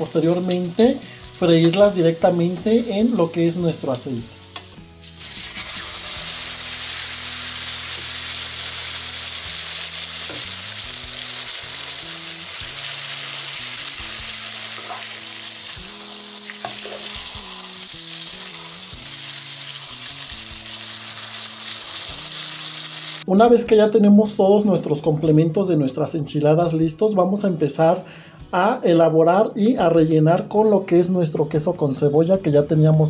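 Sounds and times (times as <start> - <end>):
tortilla sizzling in hot oil: 0.0 - 23.2.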